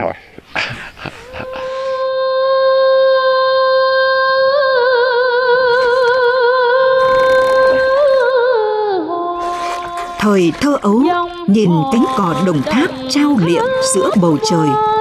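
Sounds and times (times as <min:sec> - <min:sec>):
person singing a held note: 0:01.2 - 0:03.4.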